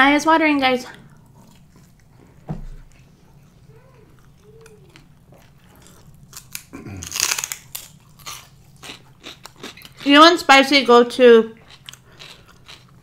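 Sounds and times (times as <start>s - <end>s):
quiet chewing: 0.9s - 10.1s, 11.6s - 13.0s
soft thump: 2.4s - 2.9s
crunching bites into celery: 4.9s - 10.1s.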